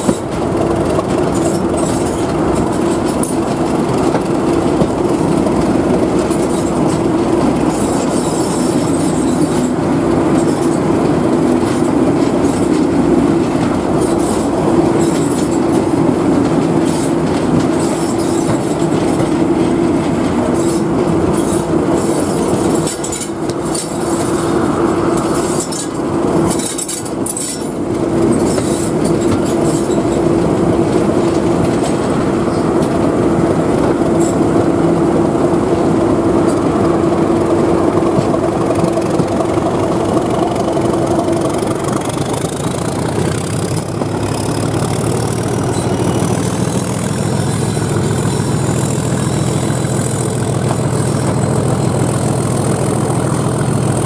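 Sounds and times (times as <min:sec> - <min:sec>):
rushing air: 0:00.0 - 0:42.0
diesel locomotive engine drone: 0:00.0 - 0:54.0
wheels rushing on rail: 0:00.0 - 0:54.0.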